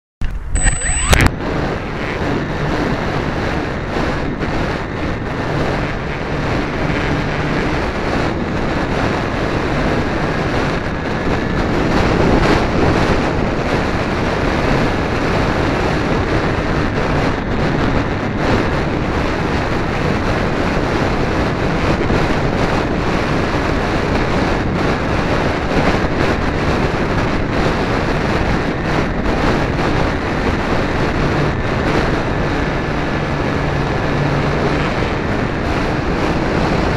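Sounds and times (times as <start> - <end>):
faint high whine: 0.2 - 2.2
wind buffeting microphone: 0.4 - 36.9.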